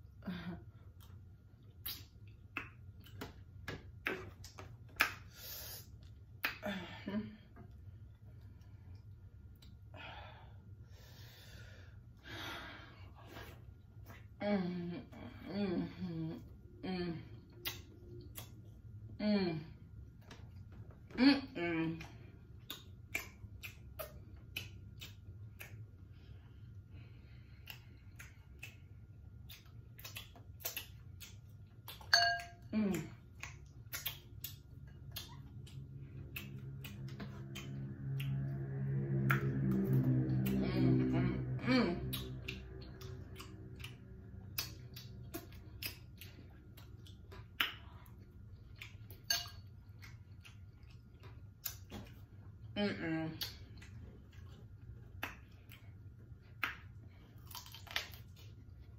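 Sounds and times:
low steady hum: 0.0 - 58.9
wet chewing clicks and smacks: 0.9 - 5.3, 8.0 - 9.9, 17.5 - 19.1, 22.4 - 26.8, 27.4 - 40.6, 42.0 - 52.7, 53.4 - 58.9
utensil clinking glass bowl: 32.1 - 32.6.

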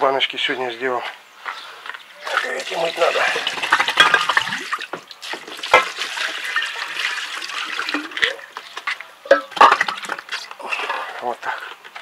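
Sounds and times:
water sloshing and splashing: 2.2 - 10.6
glass jars knocking: 3.3 - 4.7, 9.3 - 10.3.

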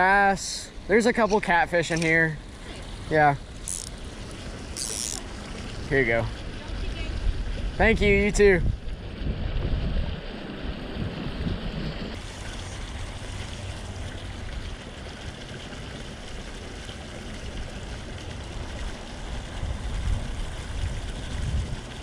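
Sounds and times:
water babbling over stones: 0.0 - 11.0, 12.1 - 22.0
low gusty rumble: 5.8 - 14.6, 18.2 - 22.0.

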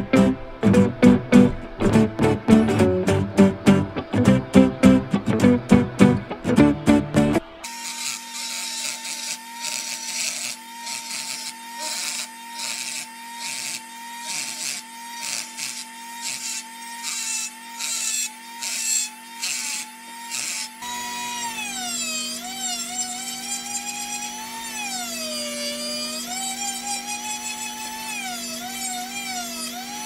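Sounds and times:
bit grinding wood: 5.4 - 30.0
rotary tool whining: 7.3 - 30.0.

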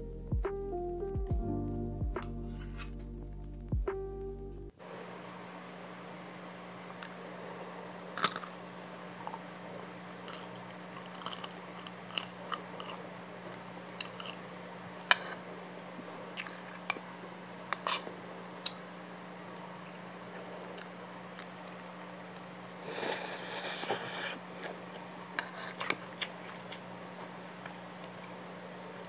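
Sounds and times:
crispy food crunching: 8.1 - 8.6, 10.2 - 15.4, 23.9 - 28.4
close chewing: 10.3 - 14.6, 22.9 - 28.4.

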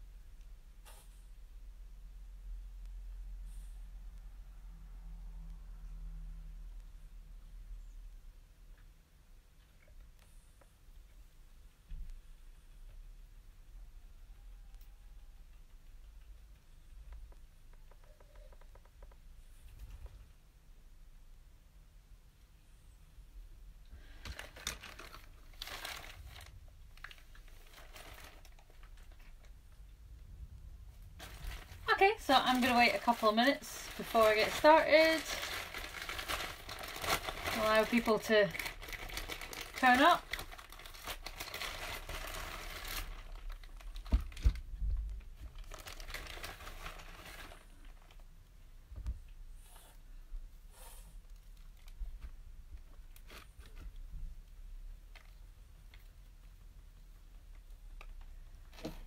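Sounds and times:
plastic bag crinkling: 24.0 - 29.6, 31.1 - 48.4.

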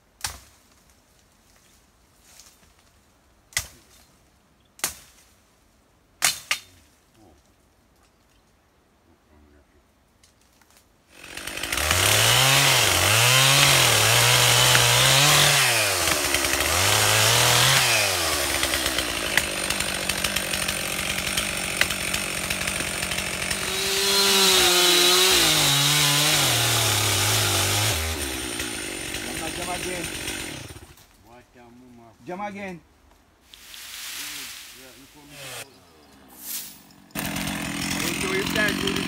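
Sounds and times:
chainsaw revving and cutting: 11.1 - 31.0, 35.2 - 35.7, 36.6 - 39.0.

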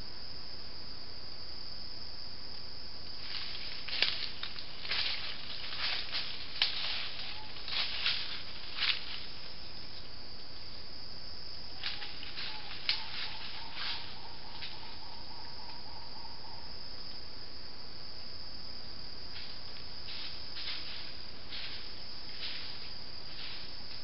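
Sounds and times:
forest insects droning: 0.0 - 24.0
rustles and crackles: 3.0 - 15.0, 19.3 - 24.0.

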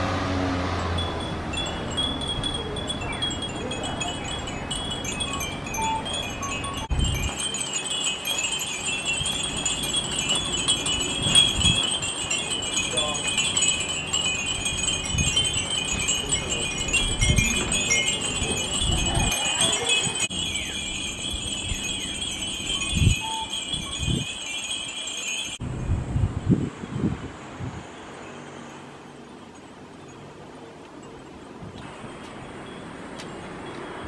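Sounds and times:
low rumbles: 0.0 - 24.7
glass wind bells tinkling: 0.1 - 27.1, 27.8 - 34.0.

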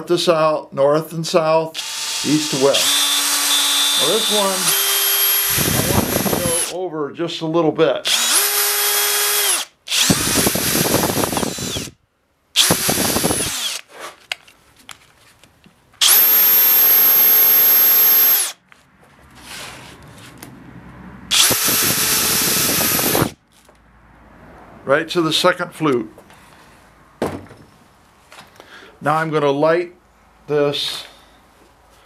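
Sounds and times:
electric drill boring into wood: 1.8 - 6.8, 8.1 - 12.0, 12.6 - 13.9, 16.0 - 18.6, 21.3 - 23.4.

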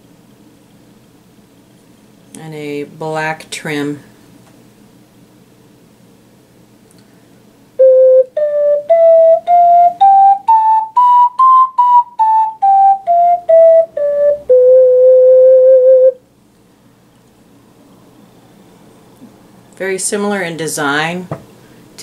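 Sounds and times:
ocarina playing a scale: 7.8 - 16.2.

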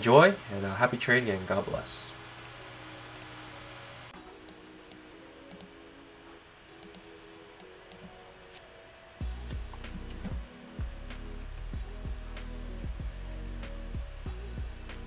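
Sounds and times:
faint background music: 0.0 - 15.0
computer mouse clicks: 2.4 - 3.3, 4.4 - 5.7, 6.8 - 8.1.

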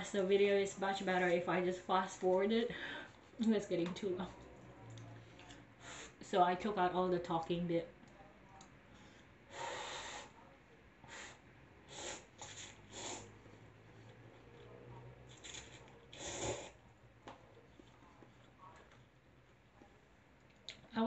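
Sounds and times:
person slurping noodles: 11.9 - 13.4, 15.4 - 16.8.

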